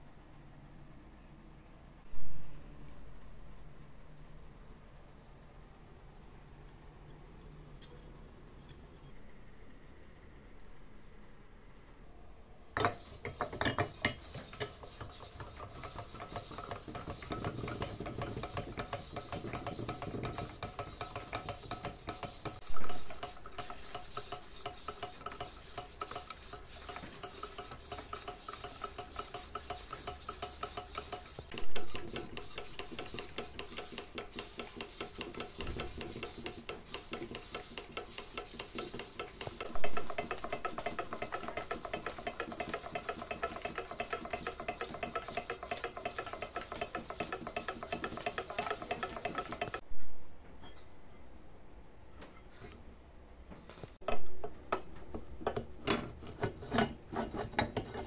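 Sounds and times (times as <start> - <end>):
scraping and rubbing on metal: 12.6 - 49.8, 52.2 - 52.8, 53.6 - 58.0.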